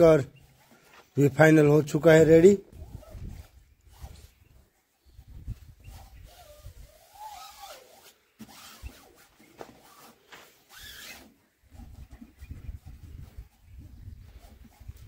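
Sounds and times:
hands rubbing sticker on paint: 5.8 - 11.3.

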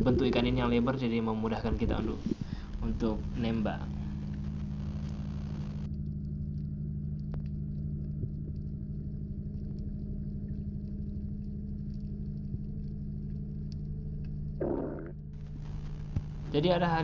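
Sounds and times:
ship machinery hum underwater: 0.0 - 17.0
faint clicks: 4.2 - 16.4.

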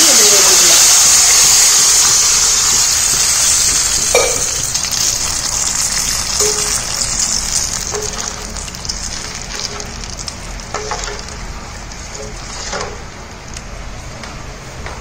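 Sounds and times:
sizzling in hot oil: 0.0 - 13.6
metal ladle scraping pan: 12.0 - 13.1.

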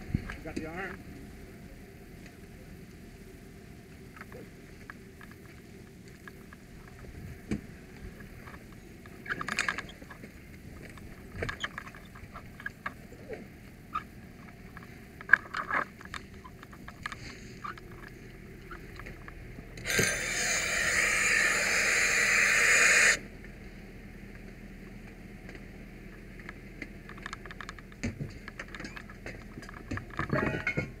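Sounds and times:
compressed air hissing: 19.9 - 23.2
gear clanking and knocking: 27.1 - 31.0.

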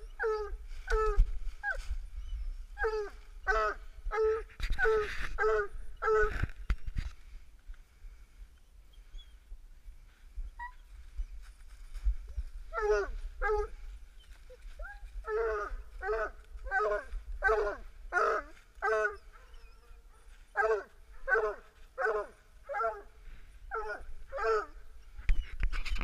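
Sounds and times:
dog barking: 20.1 - 23.1.

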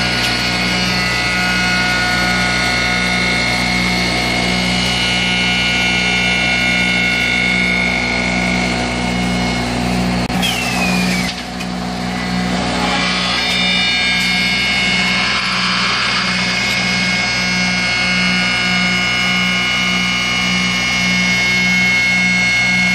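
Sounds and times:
machine motor whine: 0.0 - 22.9
pulsing hum: 0.0 - 22.9
short falling squeal: 10.3 - 11.5.

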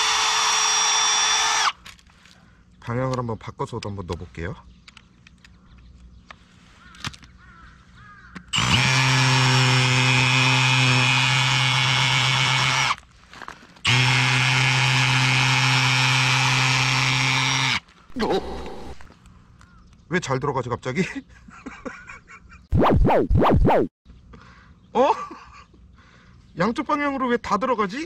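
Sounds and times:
cordless drill driving peg into gravel: 8.6 - 19.1.

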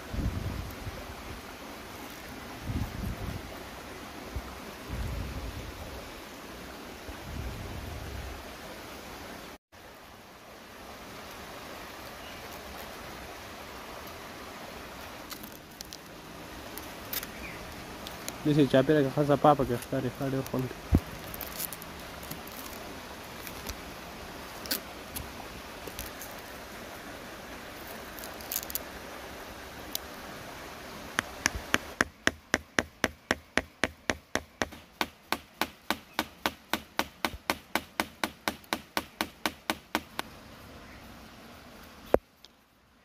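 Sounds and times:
plastic film rustling: 19.7 - 22.8.

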